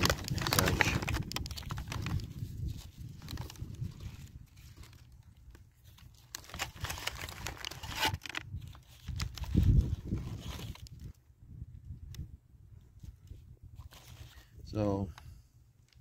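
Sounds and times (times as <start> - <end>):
wrapper paper crinkling: 0.0 - 11.2.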